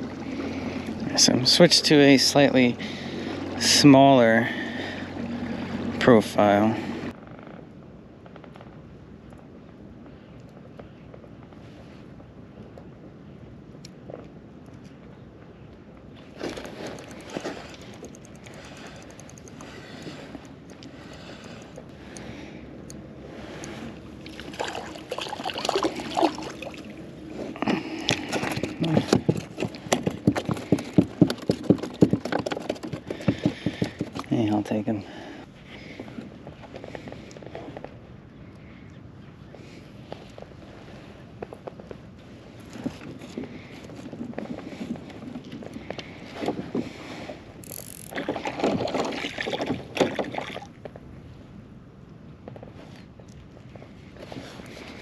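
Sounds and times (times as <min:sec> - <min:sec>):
water splashing: 0:23.4 - 0:29.0, 0:48.1 - 0:50.8
fish flopping on plastic deck: 0:23.4 - 0:34.3
knocks and handling noises: 0:27.5 - 0:34.3.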